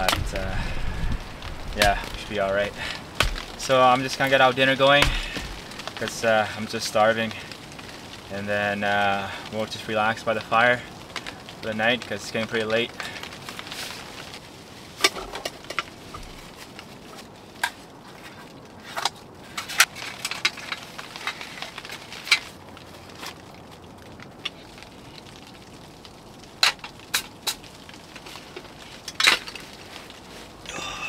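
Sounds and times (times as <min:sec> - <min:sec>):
gear knocking and rustling: 0:00.0 - 0:07.9, 0:09.2 - 0:25.4
low steady hiss: 0:00.0 - 0:31.0
wood fire popping and crackling: 0:00.0 - 0:31.0.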